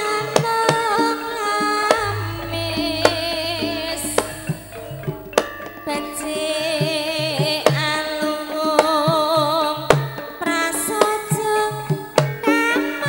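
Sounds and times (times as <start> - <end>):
gamelan dance music: 1.9 - 8.2
hand drums striking: 1.9 - 12.5
woman singing through microphone: 5.8 - 13.0.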